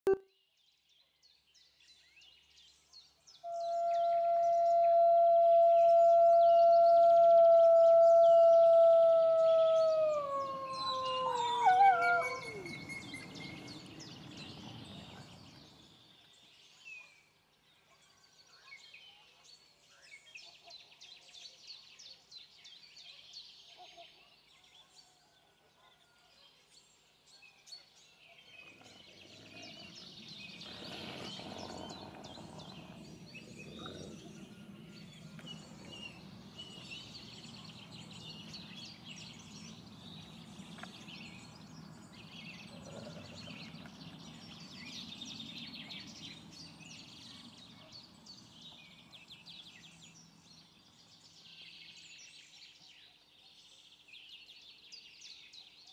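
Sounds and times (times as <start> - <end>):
wolf howling: 3.5 - 12.9
small birds chirping: 28.6 - 52.8.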